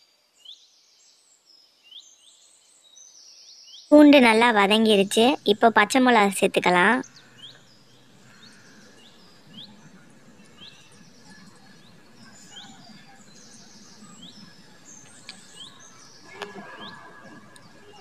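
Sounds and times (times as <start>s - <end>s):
birds chirping: 3.9s - 18.0s.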